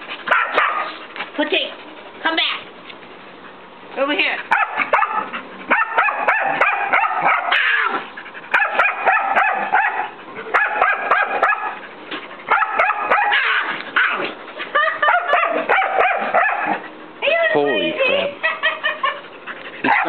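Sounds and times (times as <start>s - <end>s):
dog barking: 0.3s - 1.0s, 4.5s - 11.8s, 12.5s - 14.3s, 15.0s - 16.8s.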